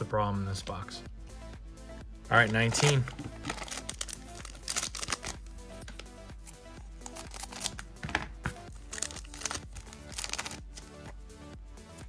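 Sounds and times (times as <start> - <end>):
quiet background music: 0.0 - 12.0
foil pack crinkling: 2.4 - 5.5, 7.0 - 7.8, 8.8 - 10.8.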